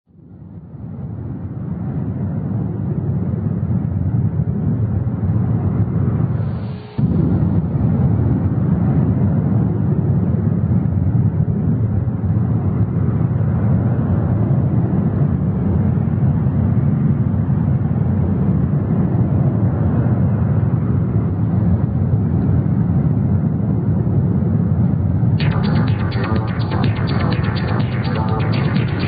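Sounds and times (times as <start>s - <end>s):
deep rumbling noise: 5.6s - 9.9s, 25.4s - 29.0s.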